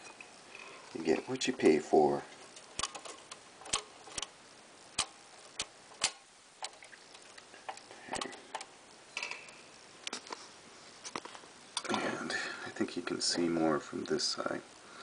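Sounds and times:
typewriter mechanism clicking: 2.8 - 4.3, 5.0 - 6.8.

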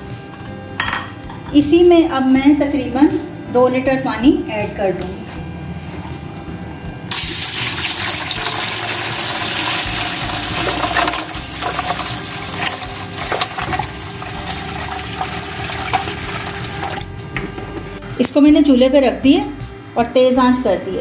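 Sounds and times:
water pouring into steel pan: 7.1 - 17.0.

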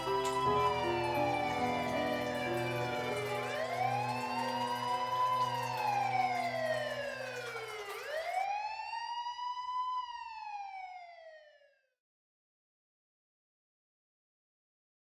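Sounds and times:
police siren wailing: 0.0 - 11.8.

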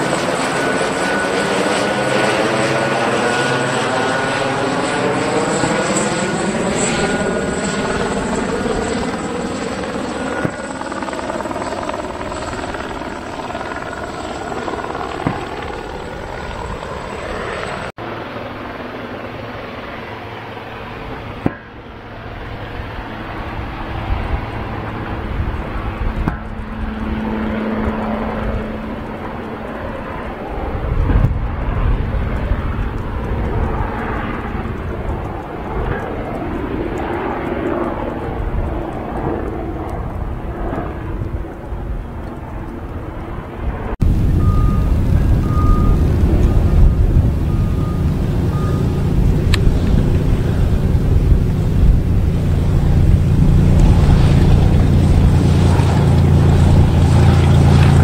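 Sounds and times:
jet airliner passing: 0.0 - 58.0
engine rumble: 20.6 - 58.0.

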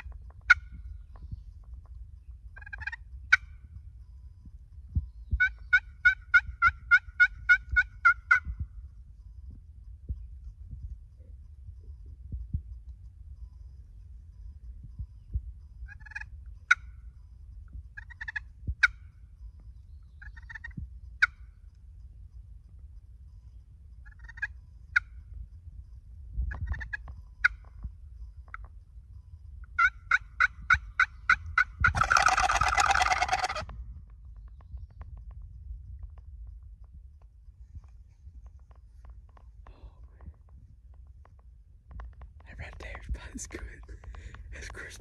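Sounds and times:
turkey call yelps: 5.4 - 8.4, 29.8 - 33.7
turkey gobbling: 5.4 - 8.4, 18.0 - 19.0, 24.2 - 24.5, 29.8 - 33.7.

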